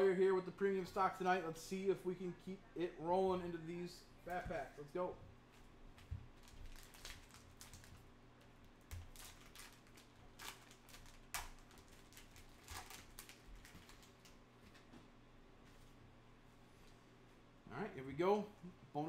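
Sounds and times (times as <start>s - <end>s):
plastic wrapper crinkling: 5.9s - 14.9s.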